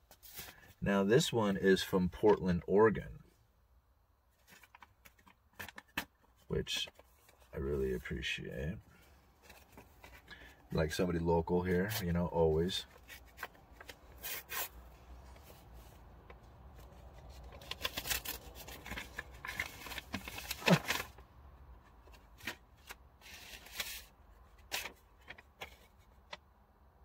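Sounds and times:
paper rustling and crinkling: 0:04.4 - 0:07.5, 0:09.4 - 0:10.4, 0:12.8 - 0:21.2, 0:22.0 - 0:26.4.

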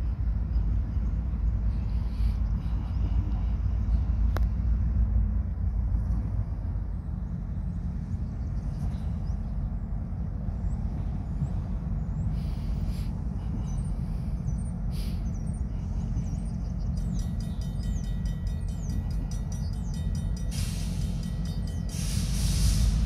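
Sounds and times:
diesel locomotive rumbling: 0:00.0 - 0:23.0
birds chirping: 0:07.0 - 0:22.4
rapid bell ringing: 0:17.0 - 0:22.0.

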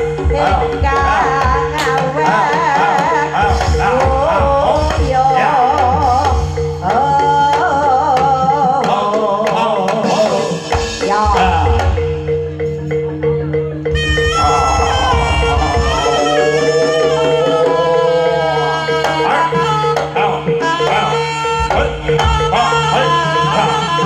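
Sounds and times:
steady ringing tones: 0:00.0 - 0:08.5
high wavering melody with vibrato: 0:00.0 - 0:09.1, 0:10.4 - 0:24.0
hand drums beating: 0:00.0 - 0:24.0.

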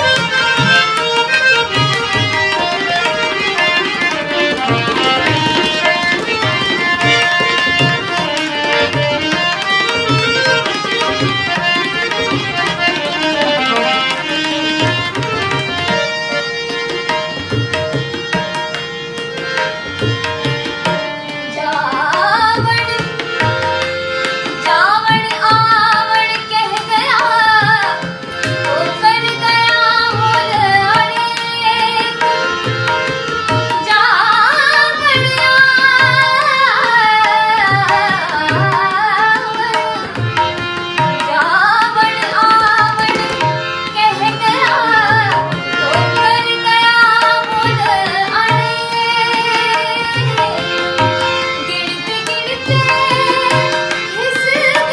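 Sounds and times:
harmonium drone: 0:00.0 - 0:54.9
tabla beat: 0:00.0 - 0:54.9
woman singing melismatically: 0:21.4 - 0:23.5, 0:24.4 - 0:32.6, 0:33.6 - 0:54.9.

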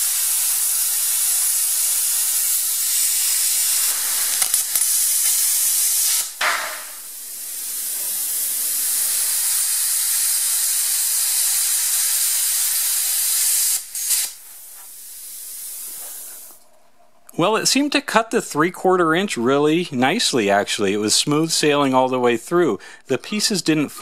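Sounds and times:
plasma cutter hissing: 0:00.0 - 0:16.6.

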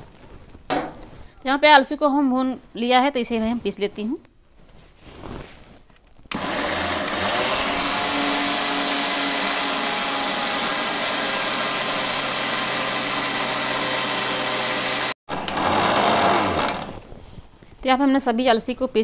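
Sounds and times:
mixer grinder grinding seeds: 0:06.3 - 0:17.1.

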